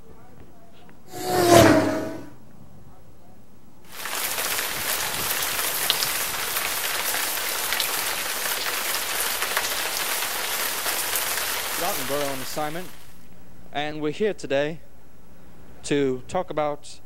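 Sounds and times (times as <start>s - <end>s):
steady rain-like hiss: 3.8s - 15.9s
faint crackles: 3.9s - 13.4s.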